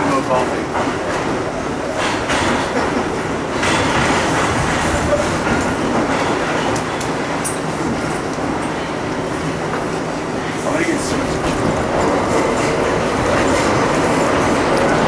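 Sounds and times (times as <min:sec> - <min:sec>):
subway wheels rumbling on rails: 0:00.0 - 0:15.0.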